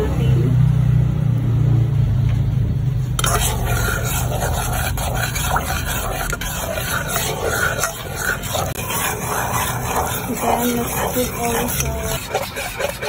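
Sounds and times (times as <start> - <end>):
steady low hum: 1.4 - 13.0
spoon scraping a saucepan: 3.2 - 13.0.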